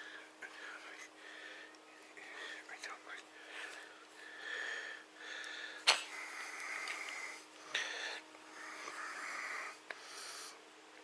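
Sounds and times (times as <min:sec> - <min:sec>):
man's wheezy breathing: 0:03.4 - 0:10.6.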